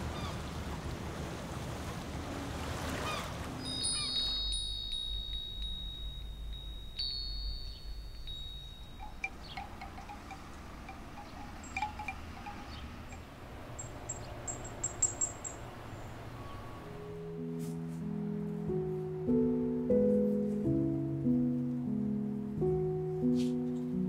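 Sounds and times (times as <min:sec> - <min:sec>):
light wind: 0:00.0 - 0:19.8
soft music: 0:03.4 - 0:24.0
bamboo wind chime knocking: 0:03.6 - 0:15.7
metal wind bell ringing: 0:03.6 - 0:16.0.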